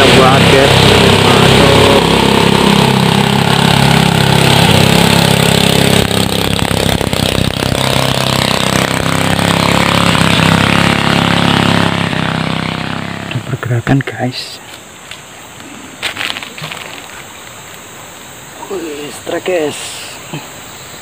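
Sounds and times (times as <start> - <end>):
boat engine droning: 0.0 - 13.6.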